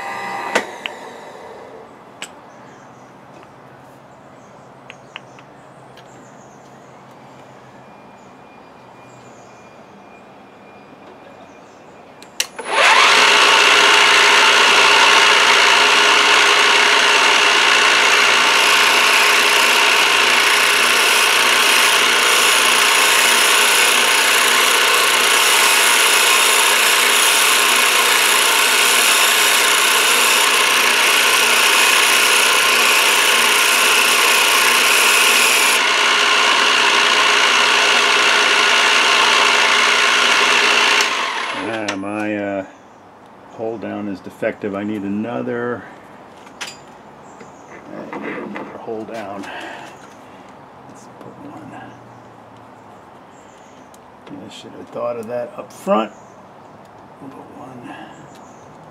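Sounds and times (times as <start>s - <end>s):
milling machine cutting metal: 0.0s - 1.4s, 12.4s - 42.0s.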